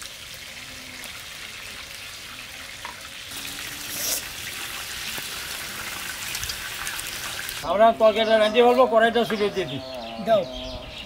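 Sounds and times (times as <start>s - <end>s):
fish sizzling in hot oil: 0.0s - 7.6s.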